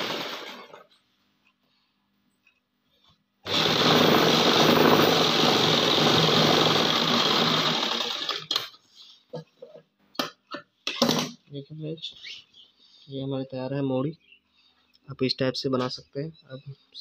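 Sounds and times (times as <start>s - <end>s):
electric sewing machine running: 0.0s - 0.8s, 3.5s - 8.7s.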